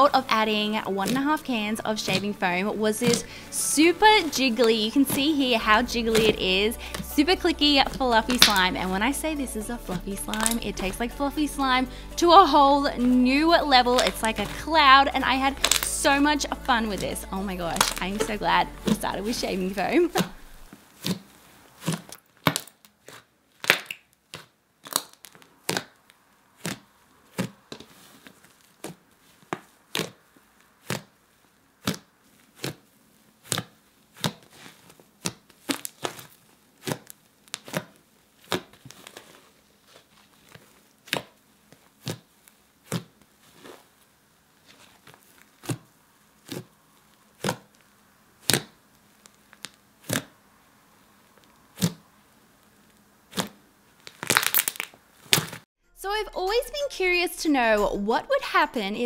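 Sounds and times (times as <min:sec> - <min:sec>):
slime crackling pops: 0:08.0 - 0:08.9, 0:10.2 - 0:10.6, 0:13.8 - 0:14.6, 0:15.4 - 0:19.1, 0:21.8 - 0:27.6, 0:33.4 - 0:39.2, 0:48.4 - 0:50.3, 0:53.3 - 0:55.6.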